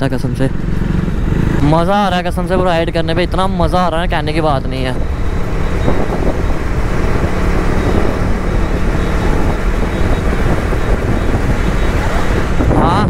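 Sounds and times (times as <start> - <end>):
motorcycle engine running: 0.0 - 13.0
wind rushing on microphone: 0.0 - 13.0.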